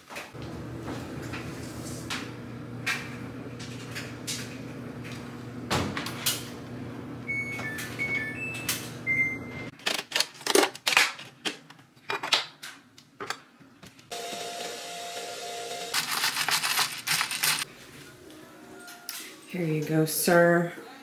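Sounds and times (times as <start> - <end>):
washing machine beeps: 7.2 - 9.7.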